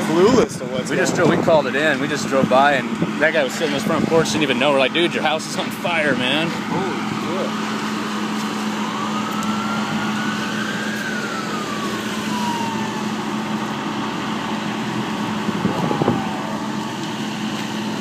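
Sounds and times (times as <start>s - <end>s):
siren wailing: 6.2s - 18.0s.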